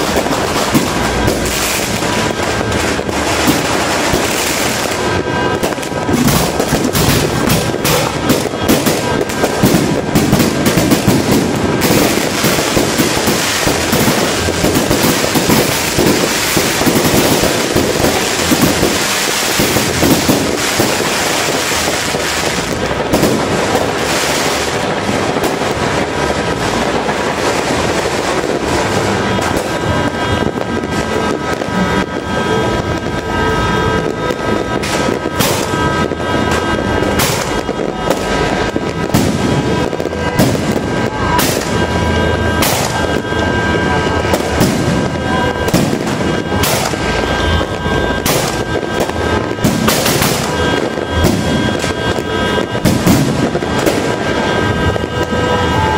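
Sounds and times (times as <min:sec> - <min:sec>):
firecrackers crackling: 0:00.0 - 0:55.9
fireworks bangs: 0:00.0 - 0:55.9.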